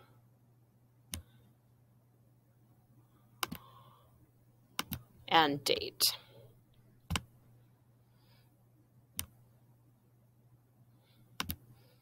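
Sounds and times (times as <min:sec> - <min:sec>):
faint room hum: 0:00.0 - 0:12.0
computer mouse clicks: 0:01.1 - 0:01.4, 0:03.4 - 0:03.7, 0:04.8 - 0:05.1, 0:07.0 - 0:07.3, 0:09.1 - 0:09.4, 0:11.4 - 0:11.7.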